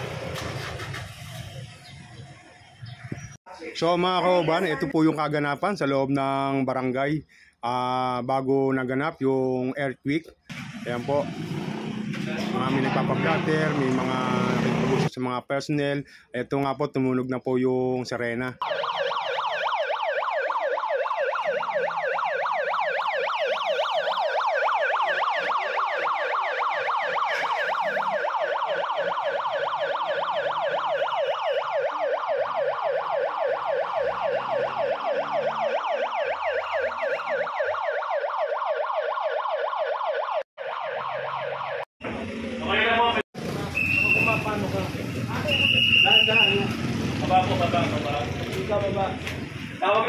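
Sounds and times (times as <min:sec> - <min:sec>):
siren yelping: 0:18.6 - 0:41.9, 0:45.3 - 0:47.8.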